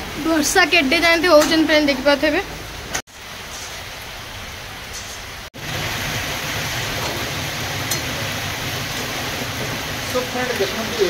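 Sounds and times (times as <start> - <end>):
heavy rain falling: 0.0 - 11.0.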